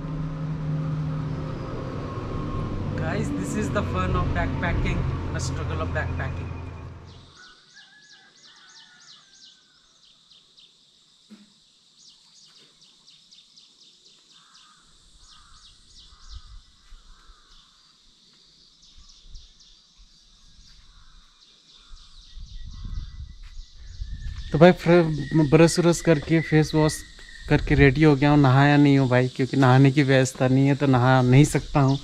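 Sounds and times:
short low rumbles: 0:00.0 - 0:07.3
insects chirping: 0:00.0 - 0:32.0
birdsong: 0:01.0 - 0:32.0.

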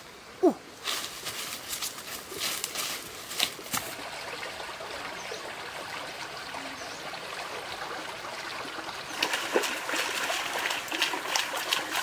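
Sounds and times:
water trickling in a stream: 0:02.0 - 0:12.0.

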